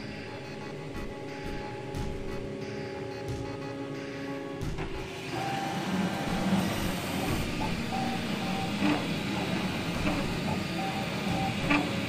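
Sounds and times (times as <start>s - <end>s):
background music: 0.0s - 9.3s
steady mechanical hum: 0.0s - 12.0s.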